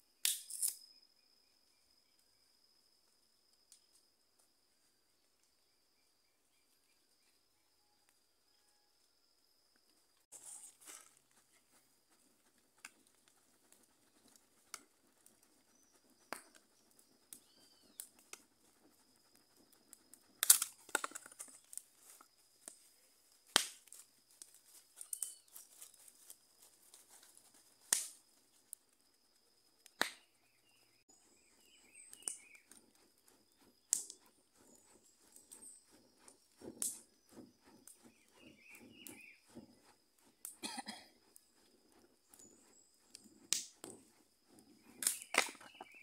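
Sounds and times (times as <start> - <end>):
wood fire crackling and snapping: 19.2 - 22.8, 23.4 - 26.4, 27.2 - 28.2, 33.9 - 34.3, 43.1 - 44.0, 44.9 - 45.6.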